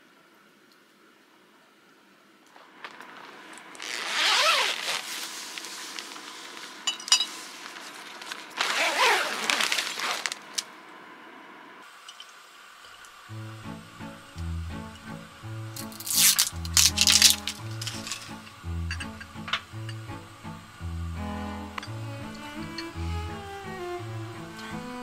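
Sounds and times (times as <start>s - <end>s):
tent zipper rasping: 3.7s - 6.6s, 8.0s - 10.6s
glass bottles clinking: 6.9s - 7.3s, 15.9s - 20.2s.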